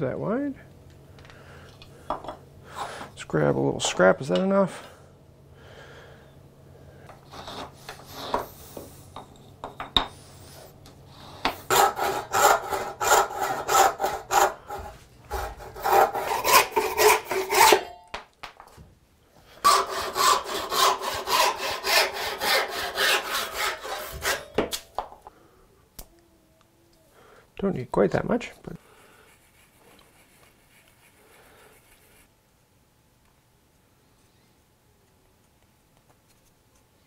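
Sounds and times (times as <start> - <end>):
hand saw cutting wood: 11.4 - 17.9, 19.6 - 24.5.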